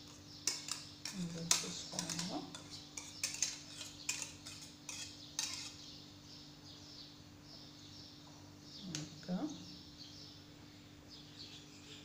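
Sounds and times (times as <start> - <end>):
whisk clinking against saucepan: 0.4 - 5.8
cream spreading: 2.0 - 5.8.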